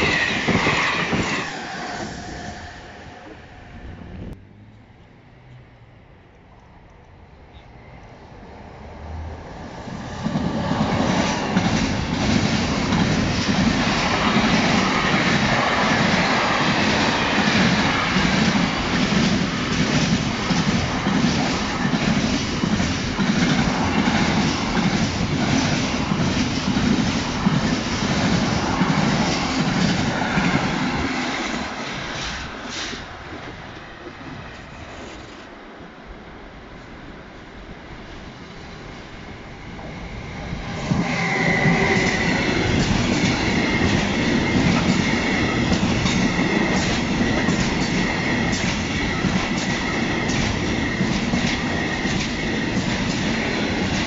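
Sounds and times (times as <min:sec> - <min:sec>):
freight train wheels clattering: 0:40.8 - 0:54.0.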